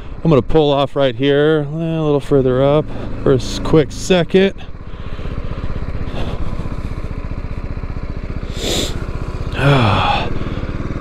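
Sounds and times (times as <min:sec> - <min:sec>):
motorcycle engine idling: 0:00.0 - 0:11.0.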